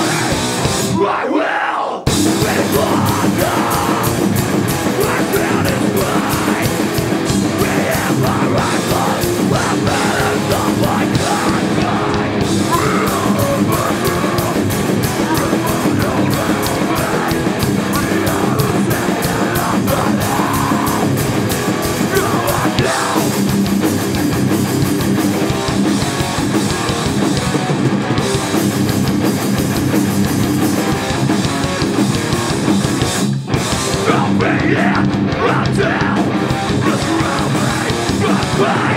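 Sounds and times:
punk band playing live: 0.0 - 1.4, 2.0 - 38.9
shouted vocals: 0.0 - 21.2, 22.0 - 23.4, 34.0 - 38.9.

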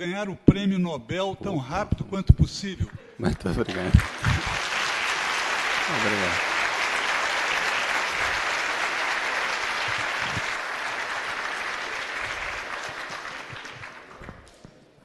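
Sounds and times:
large audience applauding: 3.7 - 14.6.

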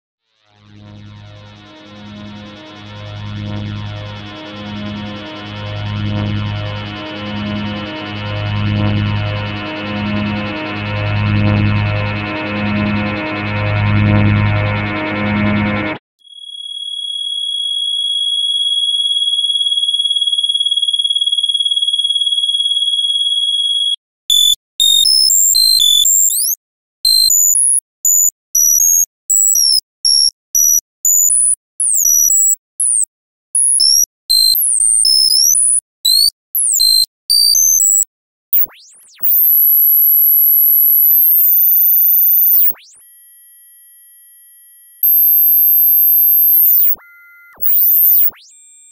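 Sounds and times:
high electronic tone: 0.5 - 16.0, 40.8 - 48.9
swooping electronic glides: 0.5 - 16.0
very high whine: 0.6 - 16.0
short beeps jumping pitch: 45.0 - 48.9.

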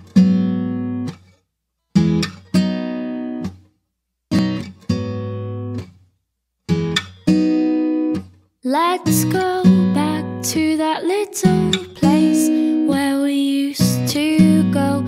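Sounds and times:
acoustic guitar strumming chords: 0.0 - 1.1, 6.7 - 15.0.

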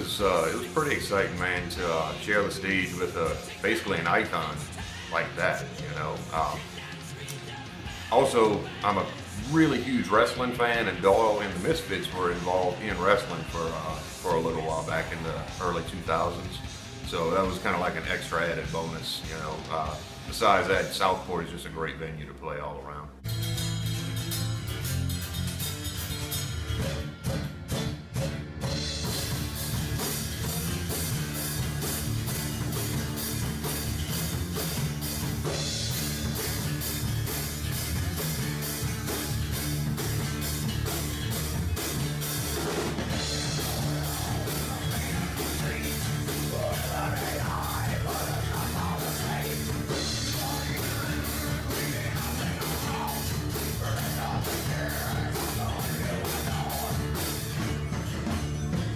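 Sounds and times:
drum kit beat: 0.0 - 21.3, 23.2 - 58.9
bass guitar: 0.0 - 58.9
strummed acoustic guitar: 23.2 - 58.9.

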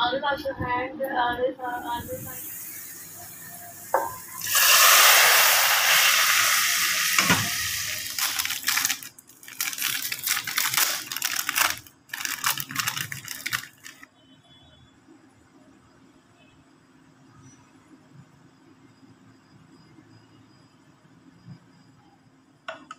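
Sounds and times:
loud hiss from pan on stove: 1.8 - 9.2
plastic wrapper crinkling: 4.0 - 14.1.

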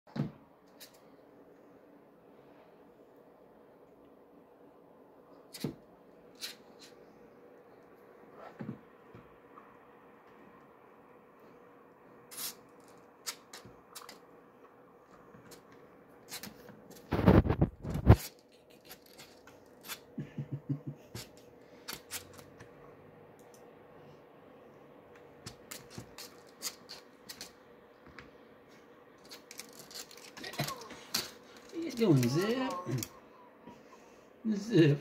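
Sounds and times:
faint steady hum: 0.1 - 35.0
plastic water bottle crinkling: 29.2 - 33.1.

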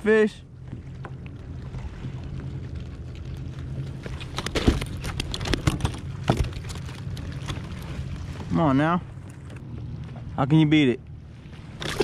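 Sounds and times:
steady low hum: 0.0 - 12.0
clicks and rattles in plastic kayak: 4.0 - 7.9, 11.7 - 12.0.

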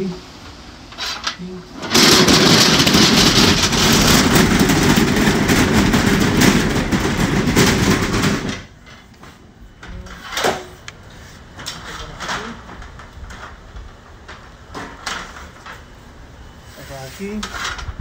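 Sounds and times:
shutter panels rattling on track: 1.8 - 9.1.

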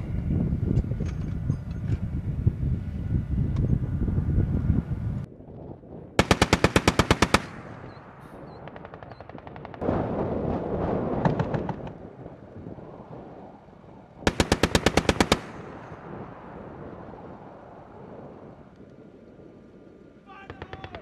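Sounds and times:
machine gun firing in bursts: 6.2 - 10.1, 11.1 - 12.0, 14.2 - 16.0, 20.4 - 21.0.

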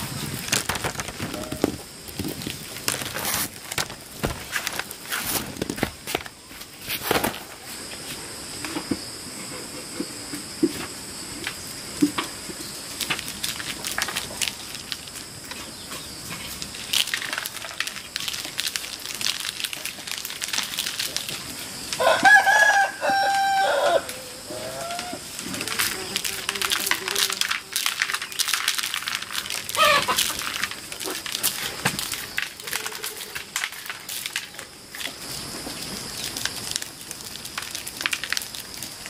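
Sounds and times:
taps and rustles: 0.5 - 7.4
rooster crowing: 22.0 - 25.2.

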